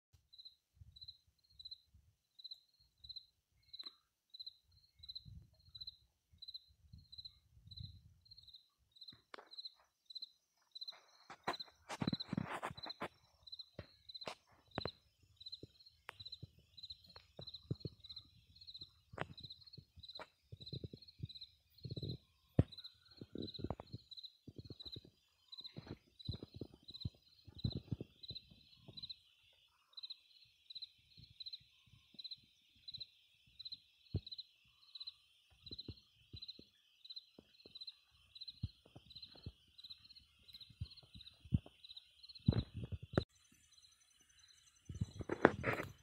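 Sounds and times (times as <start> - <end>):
insect chirping: 0.3 - 46.0.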